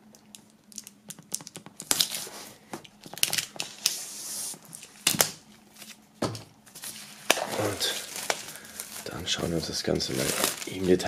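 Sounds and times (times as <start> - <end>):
plastic film crackling and tearing: 0.2 - 6.0, 6.7 - 11.0.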